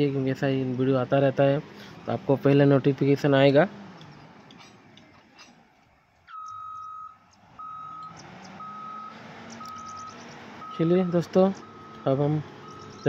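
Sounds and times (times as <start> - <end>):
faint engine running: 0.0 - 13.0
reversing alarm beeping: 6.3 - 13.0.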